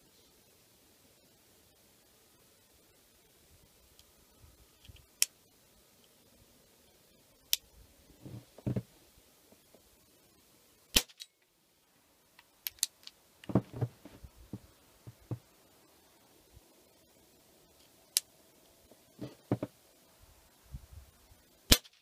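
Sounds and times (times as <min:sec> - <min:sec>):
air pistol shot: 0:10.9 - 0:11.3, 0:21.7 - 0:22.0.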